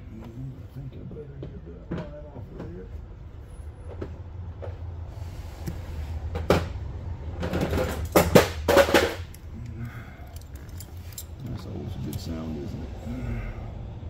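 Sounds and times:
steady low hum: 0.0 - 14.0
metal tools clattering and clanking: 7.4 - 12.5.

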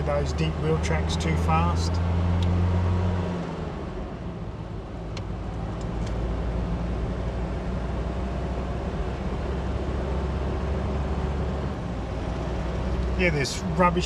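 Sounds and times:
vehicle engine drone in cabin: 0.0 - 14.0.

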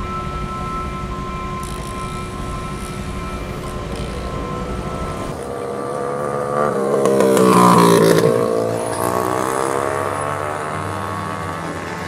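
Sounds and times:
vehicle engine passing by: 3.2 - 12.0.

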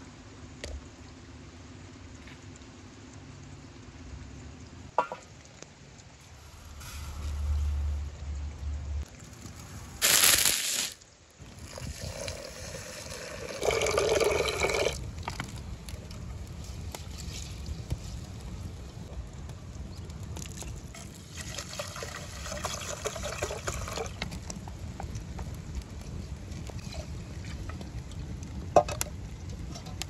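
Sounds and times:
dry rice poured into pot: 6.2 - 7.9
water running into pot: 9.3 - 15.5, 20.9 - 24.2.

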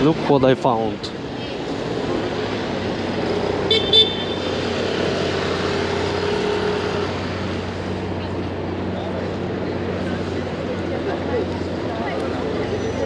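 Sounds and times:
vehicle engine: 0.0 - 13.0.

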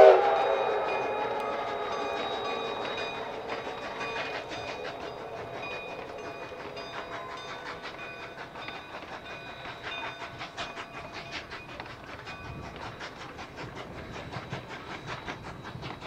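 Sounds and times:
steam whistle: 0.0 - 11.5
steam locomotive exhaust beats: 0.0 - 16.0
train rumble: 0.0 - 16.0.

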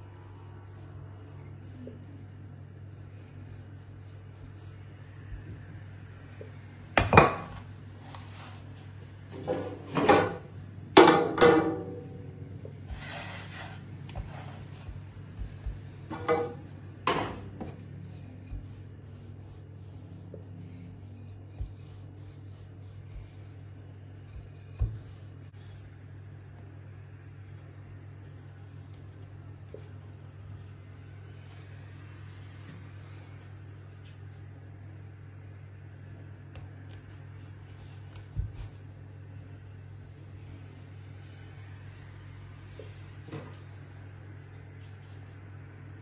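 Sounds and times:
steady low hum: 0.0 - 46.0
rolling pin on wooden board: 12.9 - 25.5, 37.8 - 38.8.

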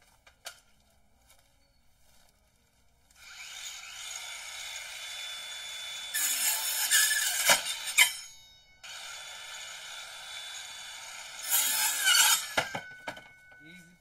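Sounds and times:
circular saw cutting wood: 3.2 - 13.2.

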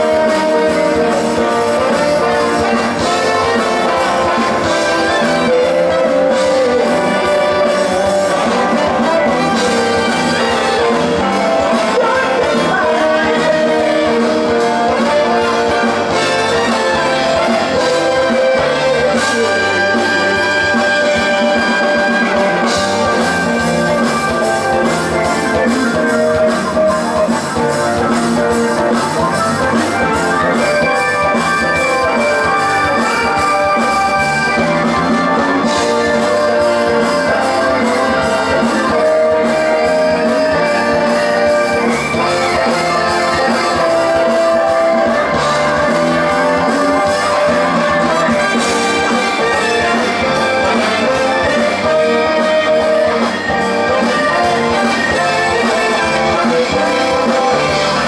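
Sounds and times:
live rock band with horns: 0.0 - 58.0.

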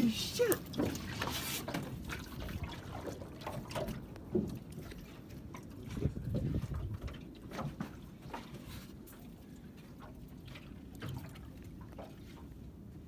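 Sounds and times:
waves slapping boat hull: 0.0 - 13.0.

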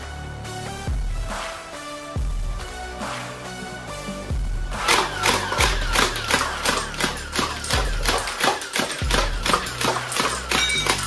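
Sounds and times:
toy dart gun firing: 4.8 - 11.0.

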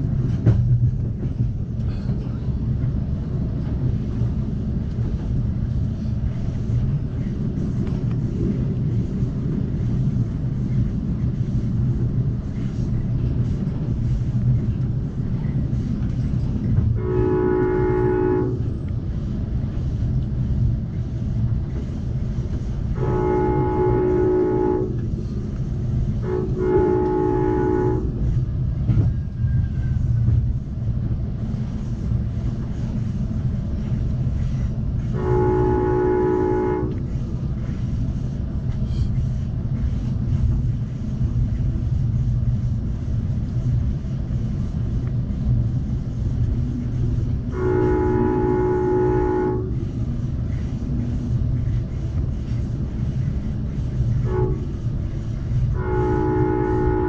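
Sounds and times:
train rumbling: 0.0 - 57.0
train horn blasts: 16.9 - 18.8, 22.8 - 25.2, 26.2 - 28.4, 35.0 - 37.1, 47.4 - 49.9, 54.2 - 57.0.

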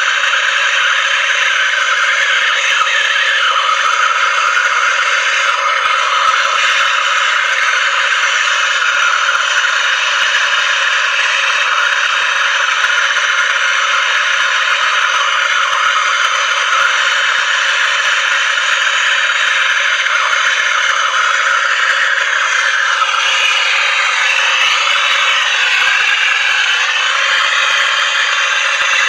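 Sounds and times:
gas torch hissing: 0.0 - 29.0.

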